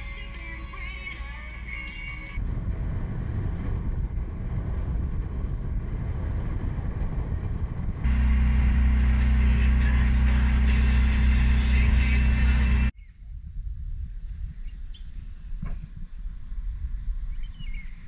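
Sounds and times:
outboard motor running: 8.0s - 12.9s.

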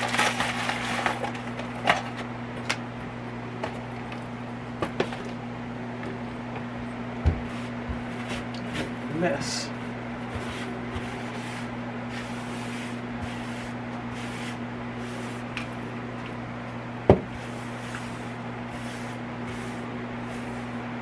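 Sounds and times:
steady low hum: 0.0s - 21.0s
paper towel wiping countertop: 7.3s - 8.9s, 9.7s - 15.7s, 17.3s - 20.9s.

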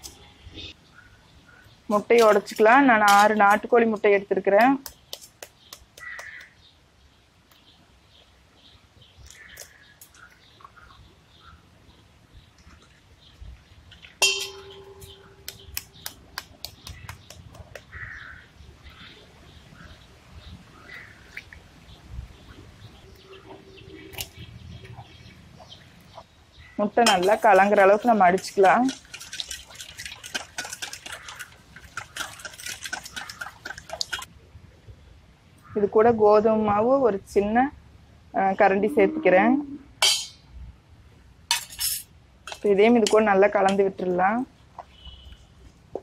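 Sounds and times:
eggshell clicks and taps: 4.7s - 6.5s, 15.0s - 17.9s
utensil beating eggs in bowl: 27.1s - 34.3s.

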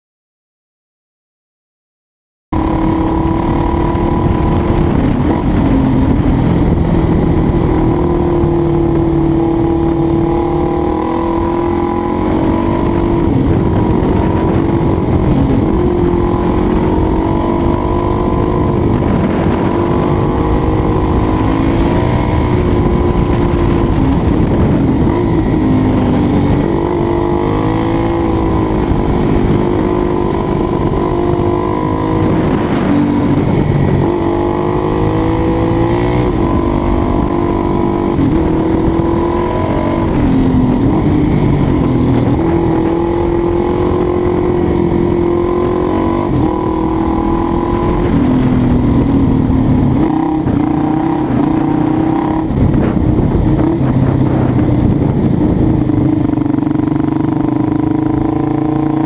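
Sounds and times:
motorcycle engine revving: 2.6s - 59.0s.

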